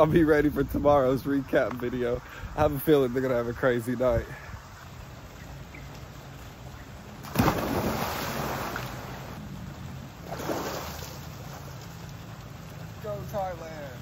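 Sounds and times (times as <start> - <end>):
splash into swimming pool: 7.2 - 9.4, 10.2 - 11.8
smaller water splash: 7.2 - 12.8.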